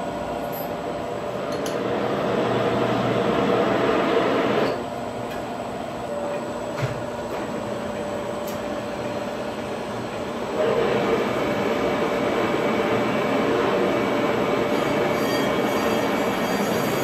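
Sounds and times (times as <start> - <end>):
lathe running: 10.4 - 17.0
turning tool cutting metal: 14.7 - 17.0.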